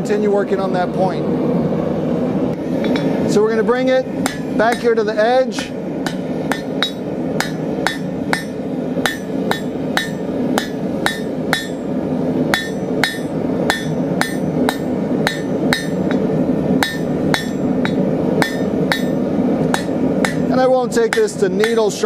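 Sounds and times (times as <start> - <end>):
hammer striking steel on anvil: 4.2 - 11.9, 12.5 - 22.0.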